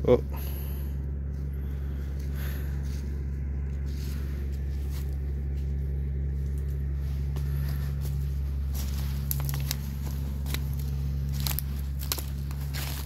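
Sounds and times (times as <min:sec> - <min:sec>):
motor humming: 0:00.0 - 0:13.0.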